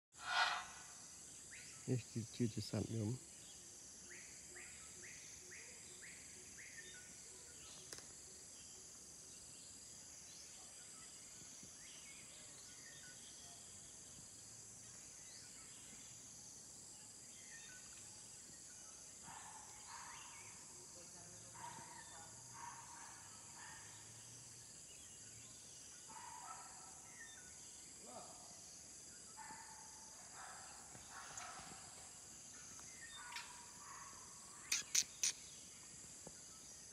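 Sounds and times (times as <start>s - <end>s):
short chirps: 0.2s - 0.9s, 34.7s - 35.4s
faint indistinct calls: 0.2s - 1.0s, 33.2s - 35.5s
high-pitched insect chorus: 0.2s - 36.9s.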